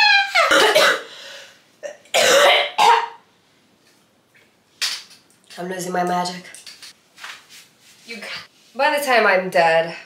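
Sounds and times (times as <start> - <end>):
woman coughing: 0.4 - 1.1, 1.8 - 3.2.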